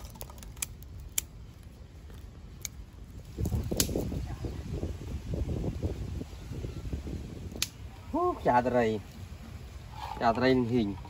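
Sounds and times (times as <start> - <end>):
sharp clicks or cracks: 0.0 - 1.3, 3.4 - 4.1, 7.5 - 7.8.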